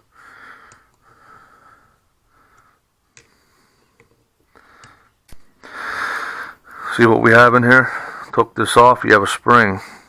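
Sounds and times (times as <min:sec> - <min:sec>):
breathing through the nose: 0:00.1 - 0:06.9.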